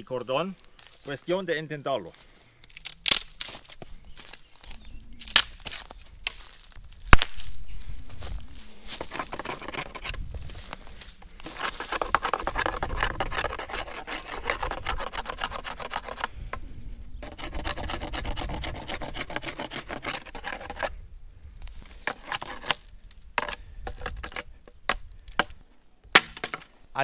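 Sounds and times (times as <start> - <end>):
stone scraping wood: 8.9 - 10.3, 11.4 - 16.6, 17.2 - 21.0, 22.0 - 22.8, 26.2 - 26.7.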